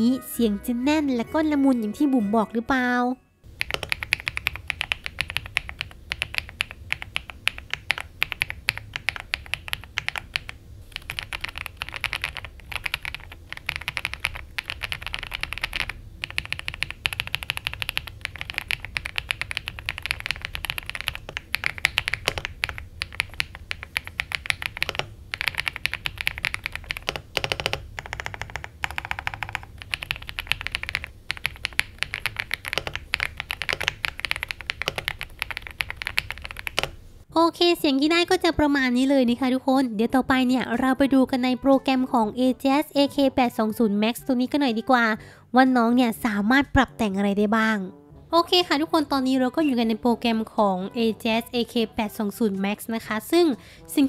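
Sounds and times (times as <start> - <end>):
mechanical keyboard typing: 3.6 - 37.0.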